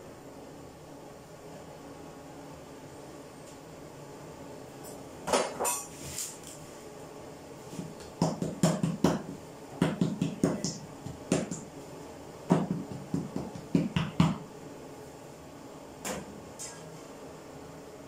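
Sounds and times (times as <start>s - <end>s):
hands slapping bread dough: 7.8s - 11.7s, 12.5s - 14.4s.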